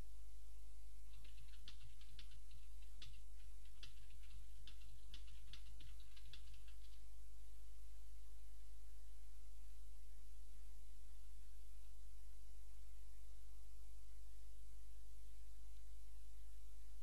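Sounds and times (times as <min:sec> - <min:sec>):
steady low hum: 0:00.0 - 0:17.0
quick irregular light clicks: 0:01.1 - 0:07.0.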